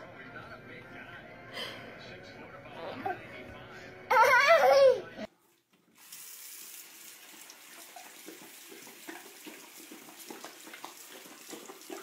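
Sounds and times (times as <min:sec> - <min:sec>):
faucet running into sink: 0:05.7 - 0:12.0
dog lapping water: 0:07.2 - 0:12.0.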